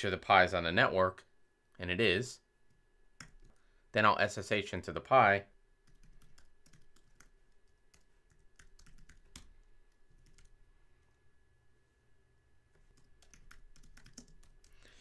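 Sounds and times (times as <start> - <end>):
typing on computer keyboard: 3.2 - 3.6, 5.9 - 10.6, 12.9 - 14.8.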